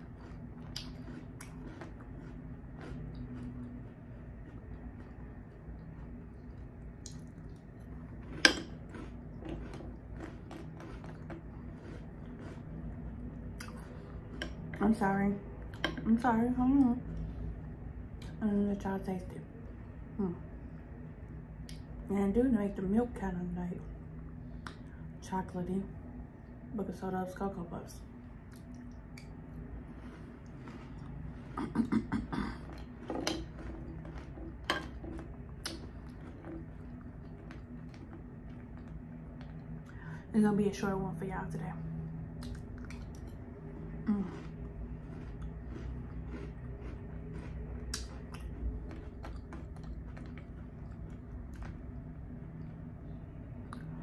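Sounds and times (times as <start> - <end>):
person chewing crunchy cereal: 0.0 - 14.8, 28.5 - 40.0, 42.4 - 52.8.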